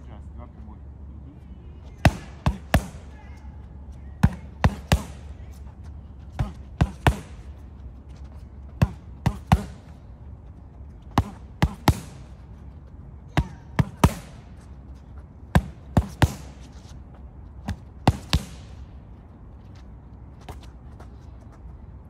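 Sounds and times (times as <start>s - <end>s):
boxing gloves smacking focus mitts: 4.2s - 5.3s, 6.3s - 7.6s, 8.6s - 10.0s, 11.1s - 12.4s, 15.5s - 16.6s.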